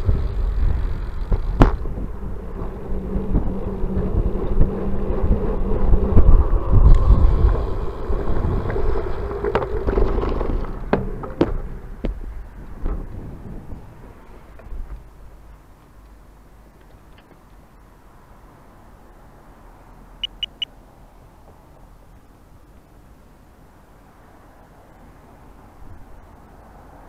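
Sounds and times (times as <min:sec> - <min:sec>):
wind buffeting microphone: 0:00.0 - 0:15.1
bicycle rolling rumble and rattle: 0:00.0 - 0:19.3.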